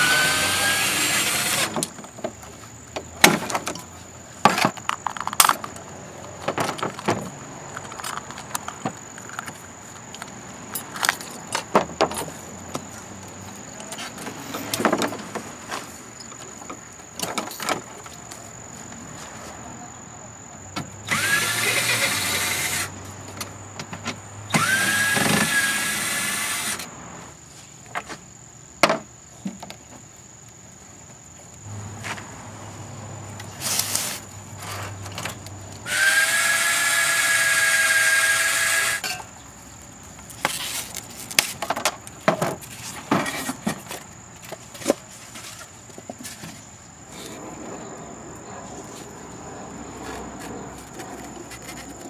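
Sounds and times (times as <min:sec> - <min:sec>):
power drill whining: 0:00.0 - 0:01.8, 0:21.1 - 0:22.9, 0:24.5 - 0:26.9, 0:35.8 - 0:39.2.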